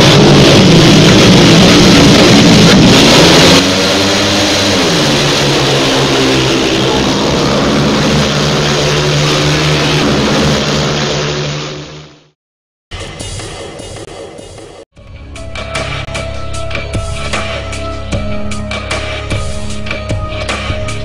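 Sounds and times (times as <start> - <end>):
engine revving: 0.0 - 12.4.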